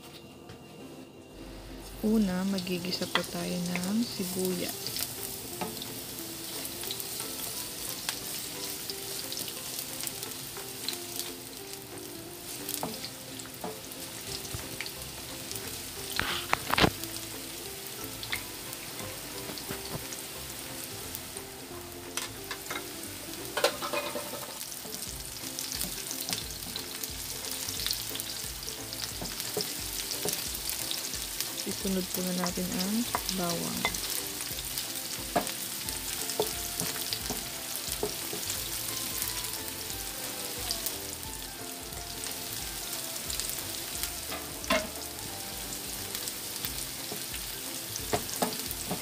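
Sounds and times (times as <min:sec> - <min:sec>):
onions sizzling in oil: 0:01.4 - 0:49.0
wooden spatula scraping pan: 0:16.1 - 0:17.0.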